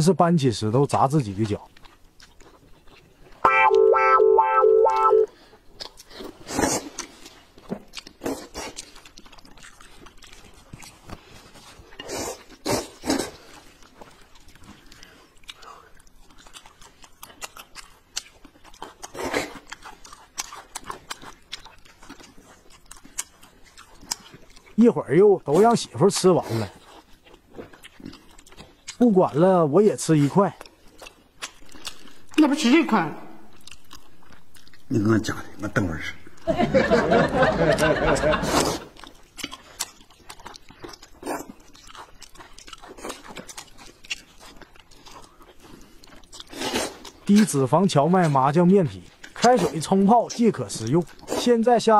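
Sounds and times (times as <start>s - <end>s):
wet chewing and slurping: 1.2s - 3.4s, 5.0s - 36.5s, 38.2s - 51.9s
slurping noodles: 6.1s - 7.2s, 12.0s - 13.6s, 38.4s - 39.0s, 45.8s - 47.1s.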